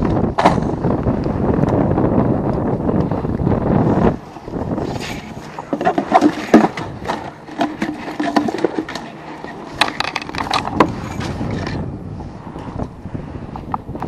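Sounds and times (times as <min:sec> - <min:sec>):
wire basket rattling and knocking: 0:05.7 - 0:11.7.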